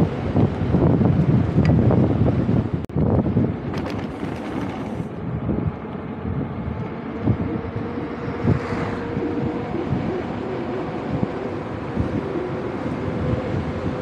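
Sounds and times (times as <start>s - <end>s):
wind buffeting microphone: 0.0s - 14.0s
mountain bike rolling and rattling: 3.0s - 5.8s.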